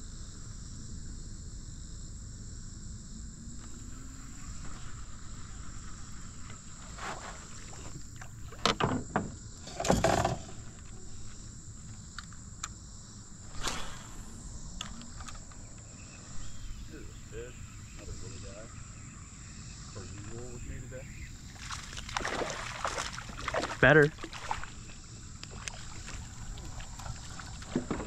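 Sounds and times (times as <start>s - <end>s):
insects droning: 0.0s - 28.0s
low outdoor rumble: 10.4s - 28.0s.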